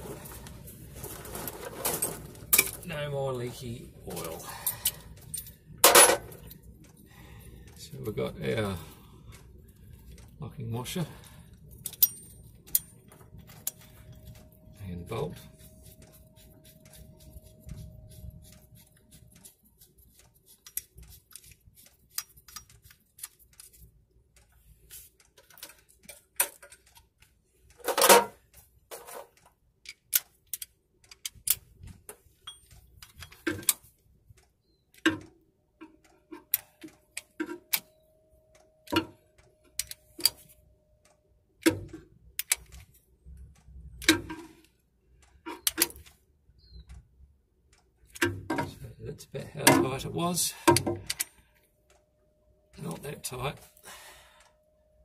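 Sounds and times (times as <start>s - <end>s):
small metal clinks: 4.2s - 7.9s, 11.2s - 14.8s, 32.3s - 33.9s.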